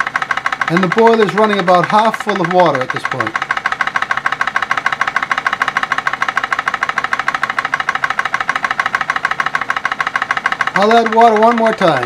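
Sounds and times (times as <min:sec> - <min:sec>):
model steam engine running: 0:00.0 - 0:12.0.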